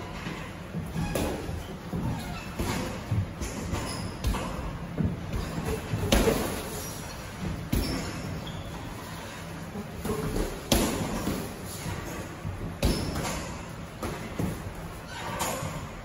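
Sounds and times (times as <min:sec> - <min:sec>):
boxing gloves punching thuds: 0:00.8 - 0:08.4, 0:10.0 - 0:14.8.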